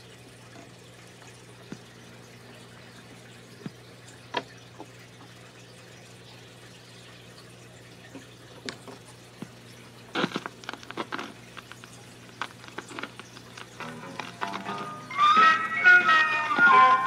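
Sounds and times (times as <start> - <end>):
vinyl clicks and crackles: 8.1 - 17.0
vinyl surface hiss: 9.4 - 17.0.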